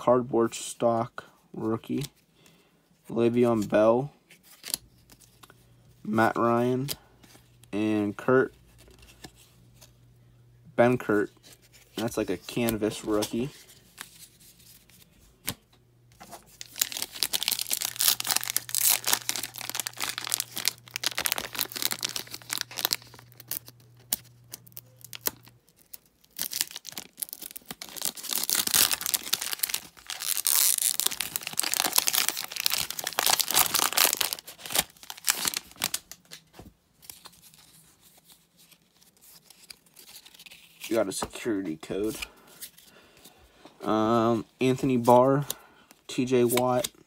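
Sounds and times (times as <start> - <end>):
wrapper ripping and crinkling: 16.2 - 41.0.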